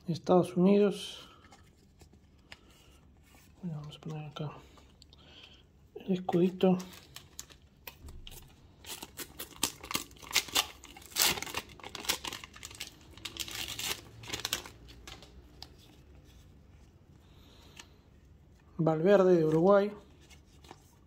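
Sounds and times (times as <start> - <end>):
crinkling rustles: 1.2 - 21.0
paper packets ripping: 6.4 - 15.9.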